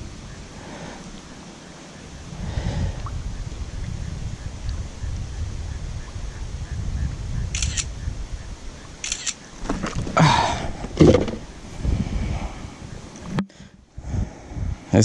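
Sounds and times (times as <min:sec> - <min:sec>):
wind rumble on microphone: 0:00.0 - 0:15.0
phone camera shutter clicks: 0:07.6 - 0:07.9, 0:09.0 - 0:09.4.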